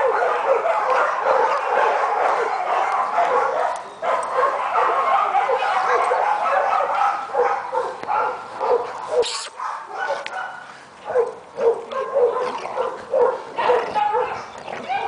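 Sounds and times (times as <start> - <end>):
dogs yipping and barking: 0.0 - 15.0.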